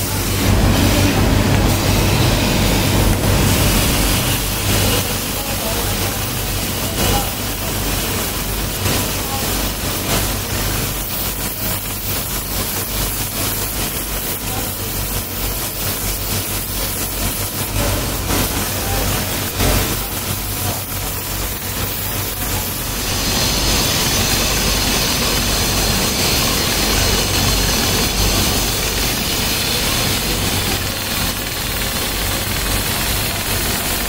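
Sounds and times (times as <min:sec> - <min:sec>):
blade grinding hiss: 0:00.0 - 0:34.0
belt grinder humming: 0:22.2 - 0:34.0.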